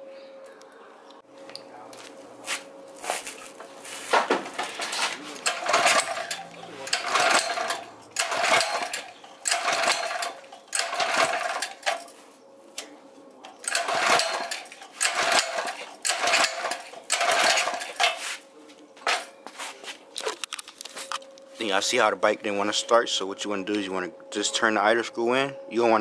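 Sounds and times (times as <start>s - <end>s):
engine turning over: 4.4s - 12.1s, 13.5s - 18.2s
engine recoil starter pulled: 4.6s - 12.1s, 13.6s - 18.2s.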